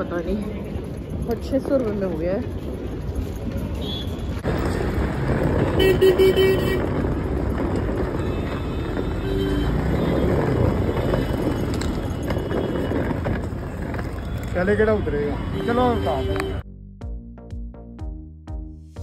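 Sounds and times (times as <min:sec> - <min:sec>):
road traffic: 0:00.0 - 0:19.0
vehicle horn honking: 0:05.7 - 0:06.9, 0:08.2 - 0:10.4, 0:14.2 - 0:16.6.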